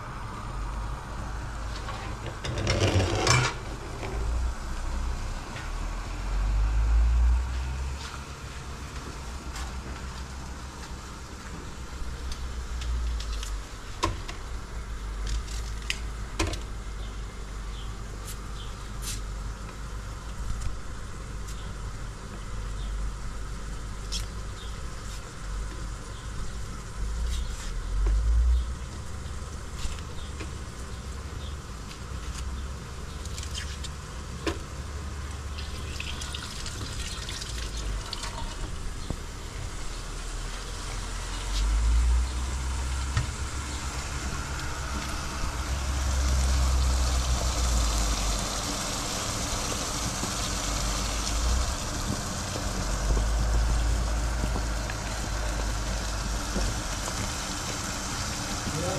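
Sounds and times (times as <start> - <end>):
steady low rumble: 0.0 - 2.5, 37.6 - 58.9.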